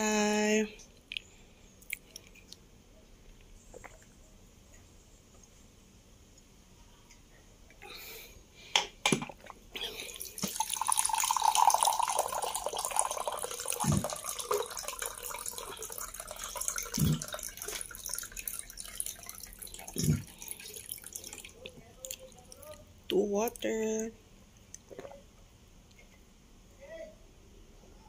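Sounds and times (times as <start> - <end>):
water pouring into a glass: 10.0 - 22.8.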